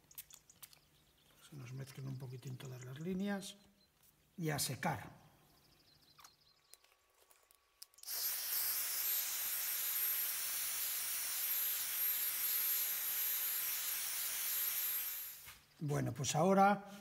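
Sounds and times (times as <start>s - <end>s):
hair dryer running: 8.1s - 15.5s.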